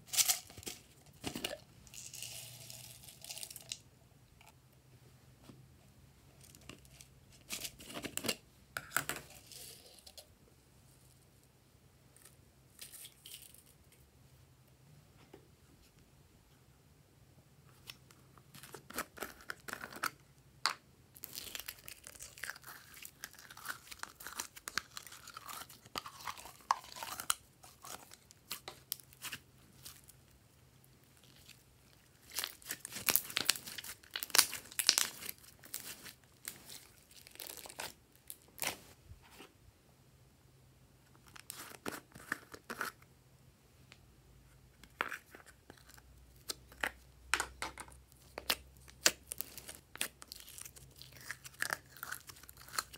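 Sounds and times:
slime clicking and crackling: 32.2 - 36.1.

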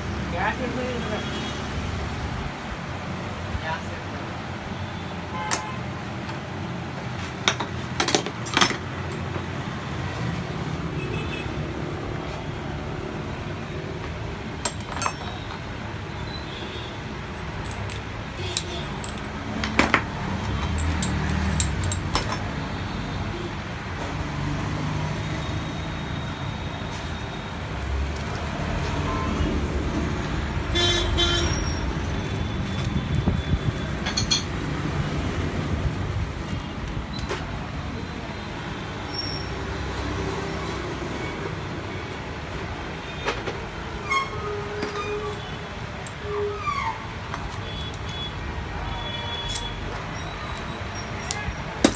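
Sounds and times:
road traffic hum: 0.0 - 51.9
metal parts clinking: 7.4 - 9.2, 14.6 - 15.6, 17.6 - 22.6, 33.8 - 34.6.

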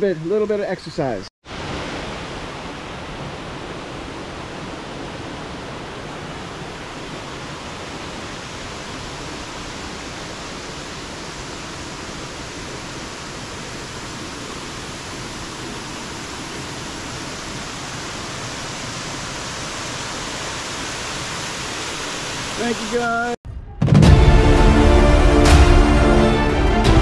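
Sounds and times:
waterfall and stream rushing: 0.1 - 23.4, 24.1 - 27.0.

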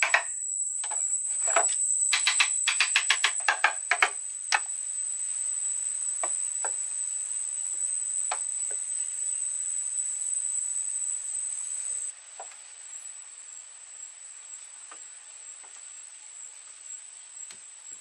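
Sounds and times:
high-pitched whine: 0.0 - 12.2.

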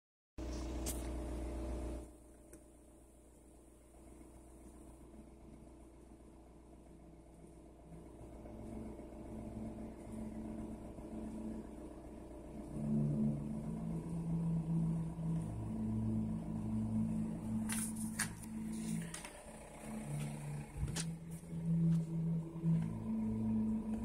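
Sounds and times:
music with deep bass line: 7.8 - 24.0.

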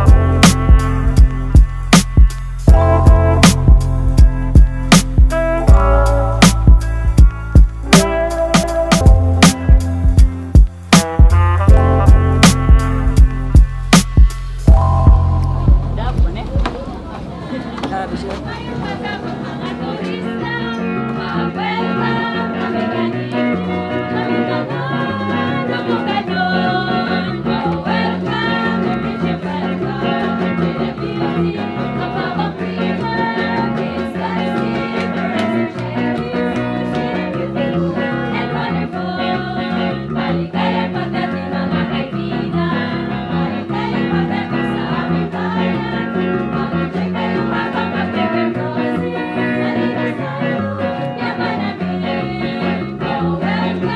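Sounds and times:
steady drum beat: 0.0 - 17.0
electric bass guitar: 0.0 - 17.5
women singing: 16.4 - 53.9
guitars: 19.4 - 53.9.

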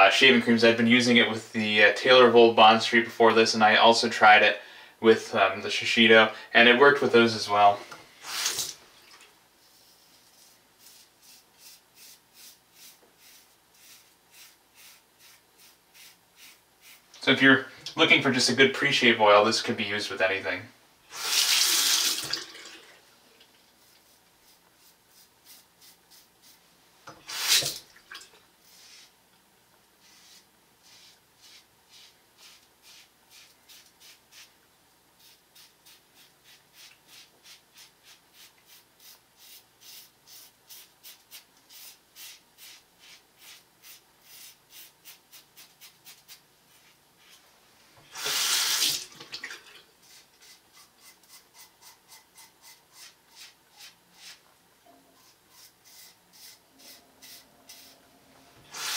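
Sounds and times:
razor scraping beard: 10.3 - 17.0, 50.0 - 54.4, 55.2 - 58.0
tap water gushing: 21.2 - 23.0, 48.0 - 49.9.

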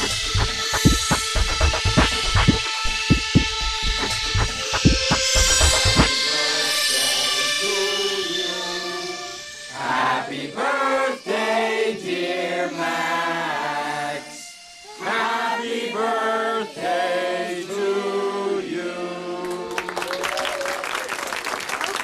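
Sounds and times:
group of voices singing: 4.6 - 20.0.

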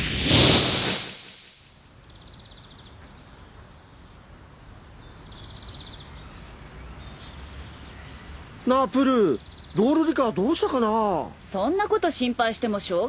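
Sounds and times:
loud rushing whoosh: 0.0 - 1.7
faint outdoor ambience: 0.0 - 13.0
small birds chirping: 2.0 - 13.0.

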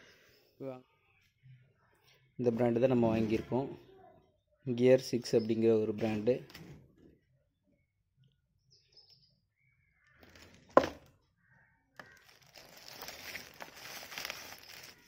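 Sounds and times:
plastic wrapping crinkling: 12.0 - 15.0.

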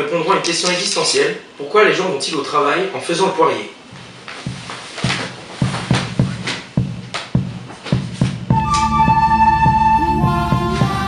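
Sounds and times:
melodic music over drum beat: 7.4 - 11.0.

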